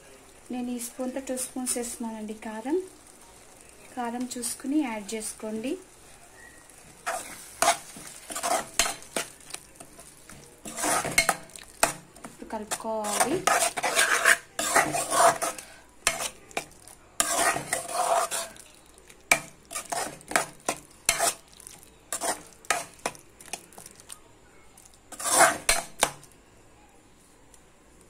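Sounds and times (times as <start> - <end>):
spoon scraping a metal pan: 7.0 - 12.0, 12.6 - 18.7, 19.3 - 21.4, 22.1 - 23.6, 25.1 - 26.2.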